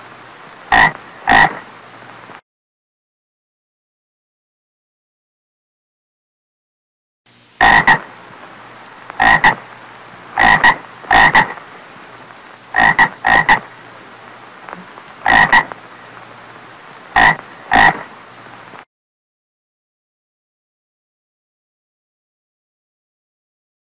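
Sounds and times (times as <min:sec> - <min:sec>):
faint hiss: 0:00.0 - 0:02.4, 0:07.3 - 0:18.9
frog croaking: 0:00.7 - 0:01.7, 0:07.6 - 0:08.1, 0:09.1 - 0:09.7, 0:10.3 - 0:11.6, 0:12.7 - 0:13.8, 0:14.7 - 0:16.1, 0:17.1 - 0:18.1.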